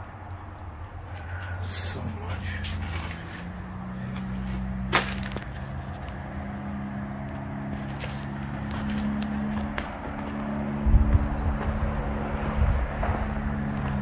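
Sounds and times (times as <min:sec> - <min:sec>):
steady low hum: 0:00.0 - 0:14.0
sharp wood crack: 0:04.9 - 0:06.2
footsteps on wooden floor: 0:08.7 - 0:14.0.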